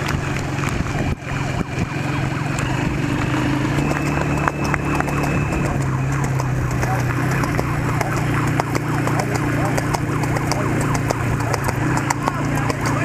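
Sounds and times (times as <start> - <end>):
horse hooves clopping on road: 0.0 - 13.0
vehicle engine running: 0.0 - 13.0.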